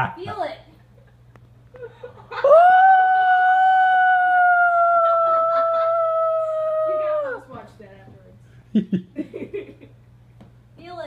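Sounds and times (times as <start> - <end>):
high-pitched voice howling: 2.5 - 7.5.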